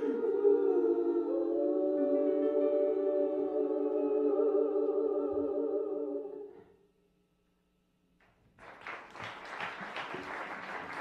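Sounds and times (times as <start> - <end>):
audience applause: 8.6 - 11.0.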